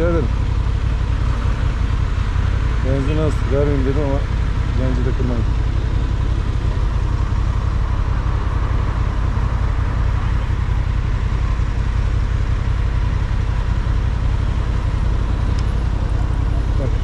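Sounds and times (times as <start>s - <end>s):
city traffic: 0.0s - 17.0s
motorcycle engine idling: 0.0s - 17.0s.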